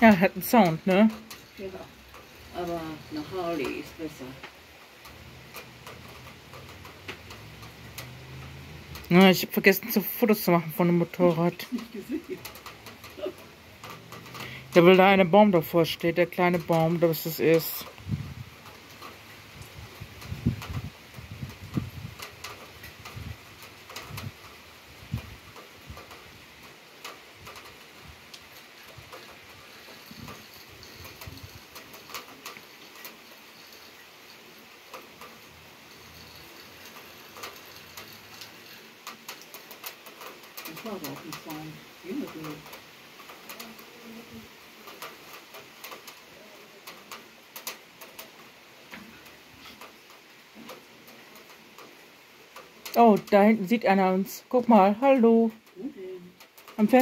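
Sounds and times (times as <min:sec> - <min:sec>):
rain falling: 0:00.0 - 0:57.0
drops ticking on hard surfaces: 0:00.1 - 0:43.9.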